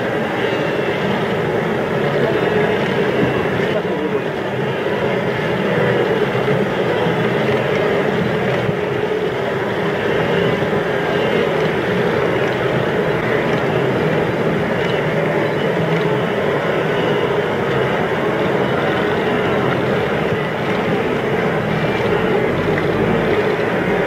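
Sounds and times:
herd hooves and splashing in river: 5.9 - 24.0.

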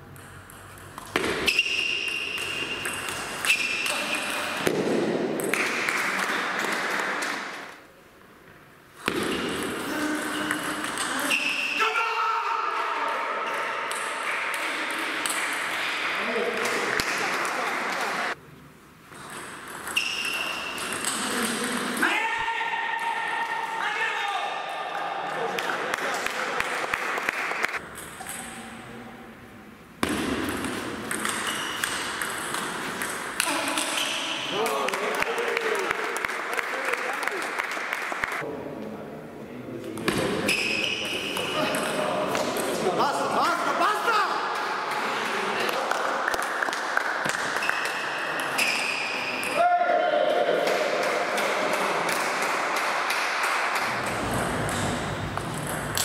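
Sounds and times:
table tennis ball hit: 0.1 - 7.4, 9.0 - 11.2, 30.0 - 34.2
spectators clapping and cheering: 5.5 - 7.7, 15.5 - 18.4, 24.9 - 27.8, 34.5 - 38.5, 44.6 - 48.5, 50.2 - 56.0.

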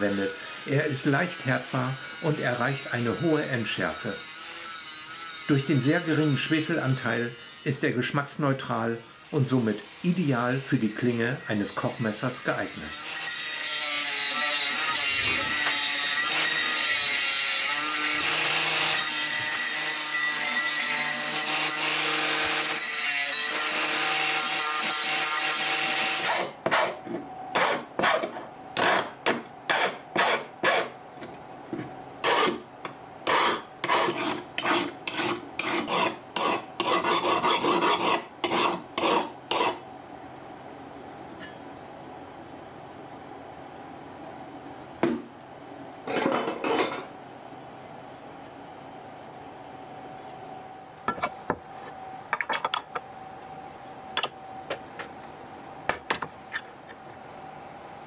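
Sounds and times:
angle grinder grinding steel: 0.0 - 8.0, 9.0 - 26.5
hand file rasping on steel: 29.7 - 30.9, 32.2 - 32.6, 33.2 - 39.8.

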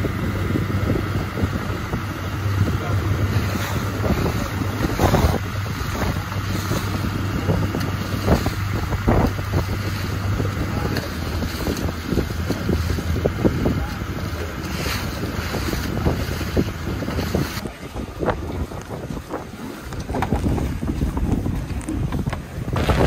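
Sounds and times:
sea and boat noise: 0.0 - 23.0
wind buffeting microphone: 0.0 - 23.0.

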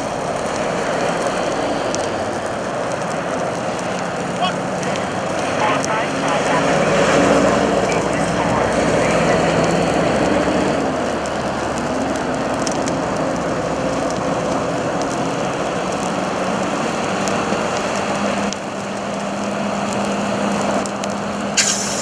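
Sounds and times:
tires burning with crackles: 0.0 - 22.0
sharp pop: 21.6 - 22.0.

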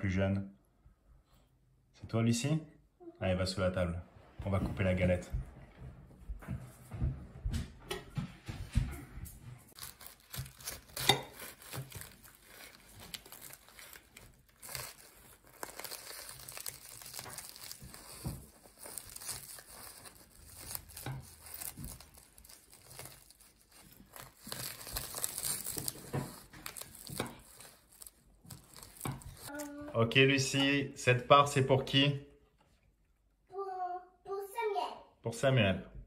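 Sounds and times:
pastry crust crackling under knife: 9.7 - 29.6.

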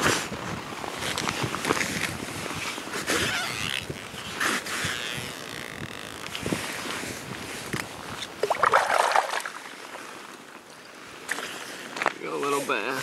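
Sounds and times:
fishing line rustling: 0.8 - 10.5
fish splashing in water: 8.4 - 10.2.

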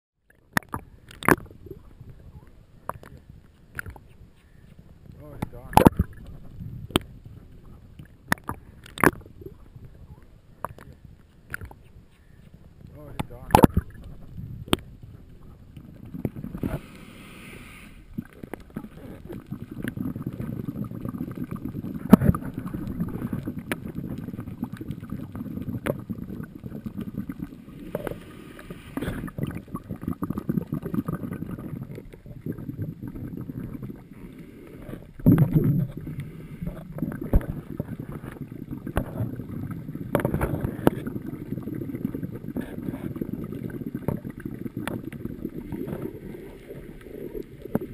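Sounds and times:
underwater churning water: 0.2 - 47.9
diver's exhaled bubbles hissing: 16.0 - 47.9.

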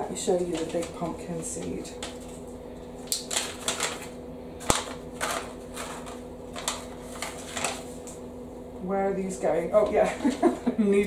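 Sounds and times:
steady low hum: 0.0 - 11.0
paper packets rustling: 0.2 - 8.2.

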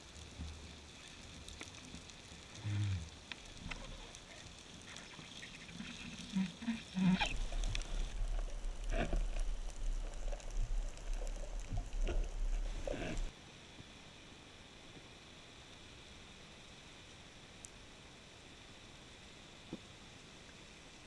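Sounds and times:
underwater crackle and clicks: 0.0 - 13.3
steady low underwater rumble: 5.3 - 13.3.

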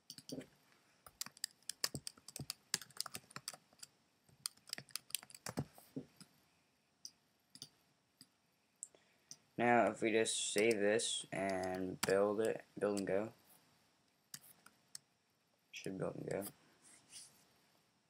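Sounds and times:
computer keyboard typing: 0.0 - 0.4, 1.1 - 5.7, 11.4 - 13.1.

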